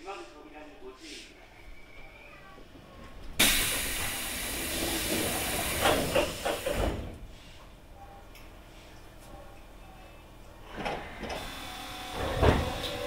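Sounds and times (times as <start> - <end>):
compressed air hiss: 3.4 - 7.5.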